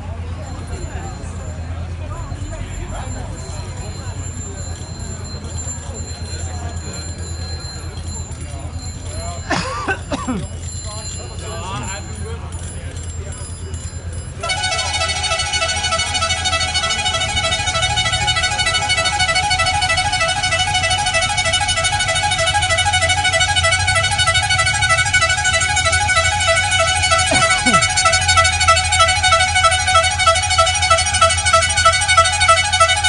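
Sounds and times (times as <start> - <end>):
low engine hum: 0.0 - 33.0
car horn long blast: 14.4 - 33.0.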